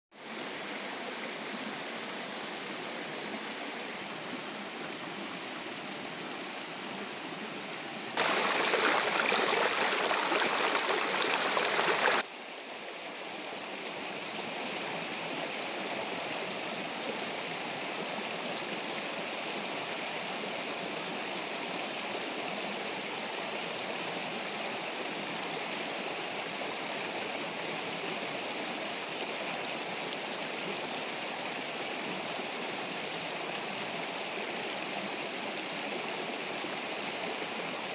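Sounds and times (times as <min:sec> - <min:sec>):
stream water rushing: 0:00.2 - 0:37.9.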